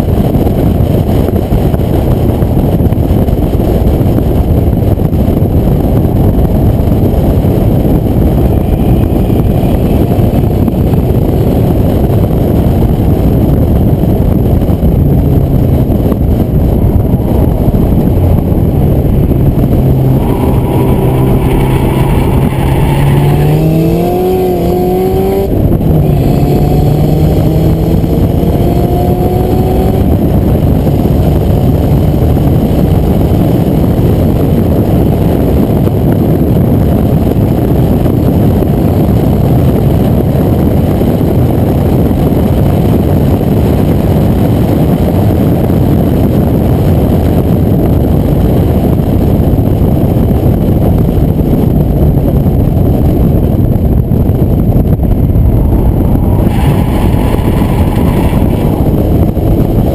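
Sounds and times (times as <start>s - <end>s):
wind and road noise: 0.0s - 59.9s
car engine accelerating: 5.9s - 36.5s, 52.4s - 59.9s.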